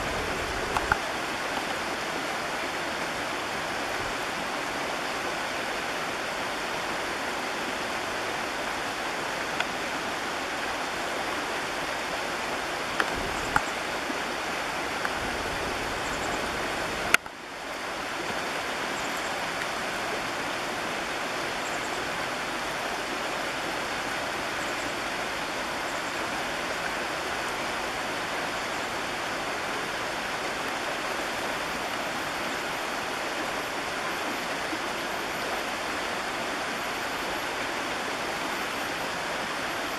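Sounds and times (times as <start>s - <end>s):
creek water rushing: 0.0s - 39.9s
faint clicks: 0.7s - 1.8s.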